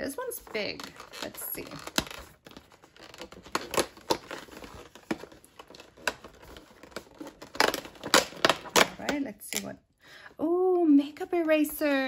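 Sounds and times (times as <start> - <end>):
cardboard tearing and crinkling: 0.8 - 9.0.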